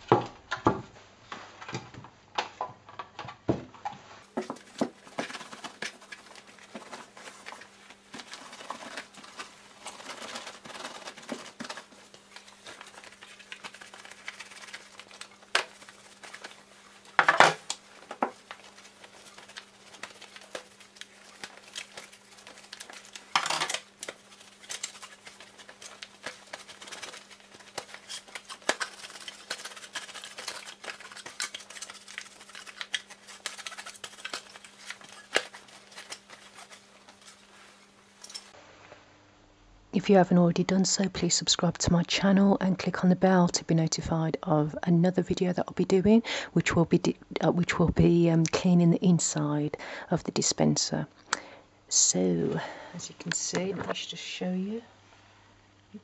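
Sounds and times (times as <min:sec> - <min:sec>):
cloth rubbing on plastic: 0:04.1 - 0:38.6.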